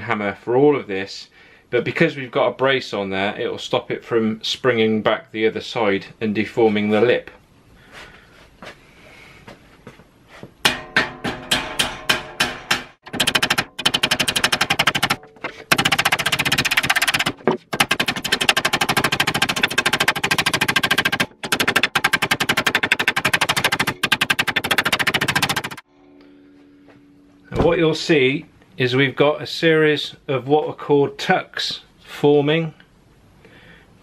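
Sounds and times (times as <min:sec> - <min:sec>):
metal panel ringing: 0:10.6 - 0:13.0
hammer tapping sheet metal: 0:10.6 - 0:25.8.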